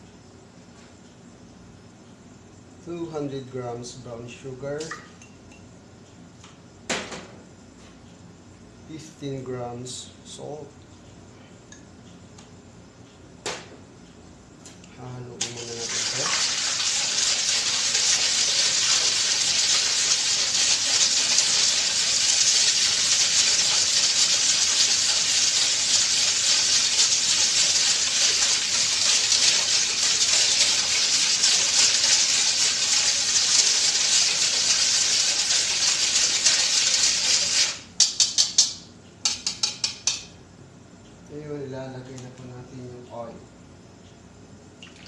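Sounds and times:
whisk swishing liquid in metal bowl: 0:16.9 - 0:37.8
whisk tapping metal bowl: 0:29.1 - 0:40.3.

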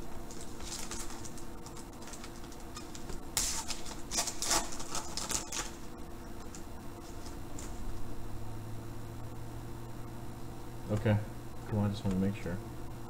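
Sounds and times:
plastic wrapper crinkling: 0:00.2 - 0:05.8.

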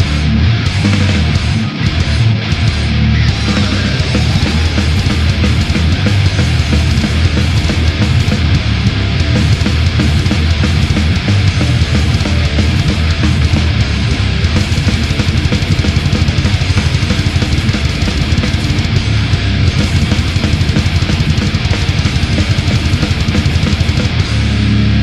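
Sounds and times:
distorted electric guitars: 0:00.0 - 0:25.0
fast dense drumming: 0:00.0 - 0:25.0.

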